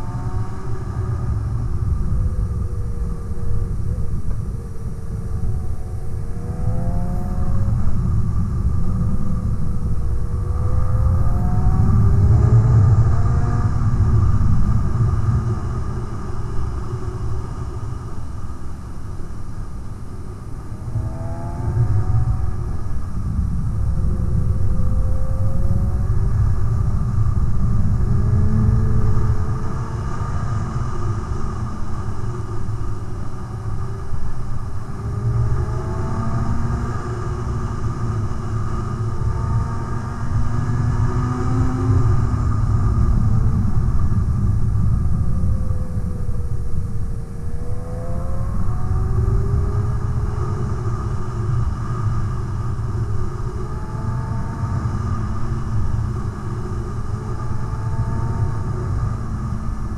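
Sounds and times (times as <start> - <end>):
wind rumble on microphone: 0.0 - 59.9.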